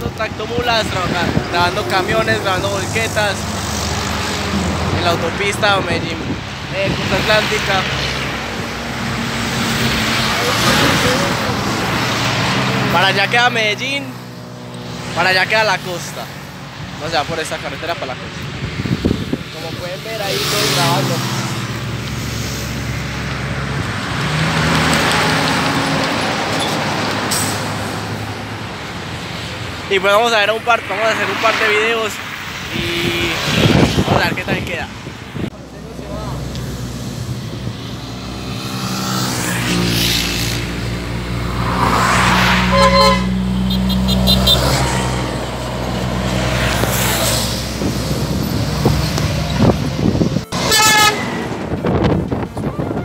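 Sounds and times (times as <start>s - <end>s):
motorcycles passing: 0.0s - 53.0s
tyre and road noise: 0.0s - 53.0s
truck diesel engine passing: 35.5s - 52.6s.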